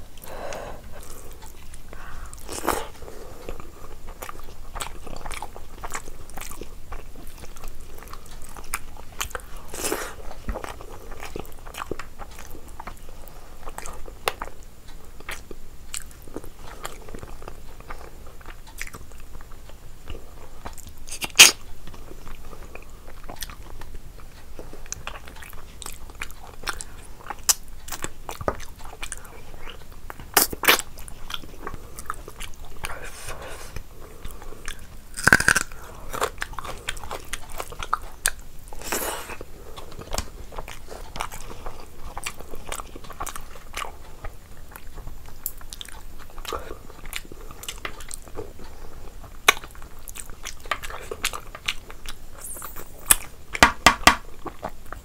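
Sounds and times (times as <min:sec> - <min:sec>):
chewing and wet mouth sounds: 0:00.1 - 0:55.0
crunchy bites: 0:34.7 - 0:39.4.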